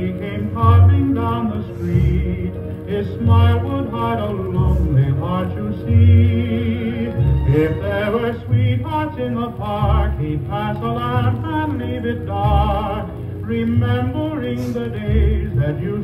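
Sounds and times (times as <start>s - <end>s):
bass accompaniment: 0.0s - 16.0s
person singing with vibrato: 0.0s - 16.0s.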